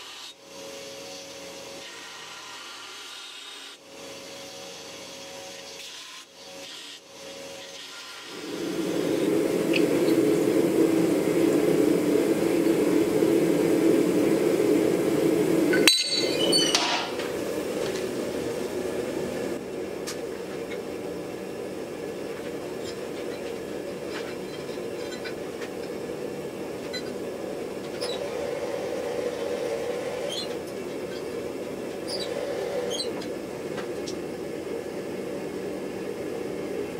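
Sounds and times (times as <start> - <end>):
forge drone: 8.3 - 19.8
cooling metal clinks: 15.8 - 17.1.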